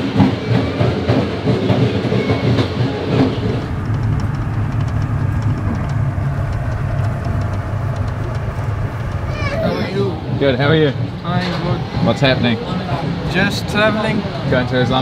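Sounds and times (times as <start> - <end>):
train carriage low rumble: 0.0 - 15.0
faint wheel clicks: 3.6 - 9.6.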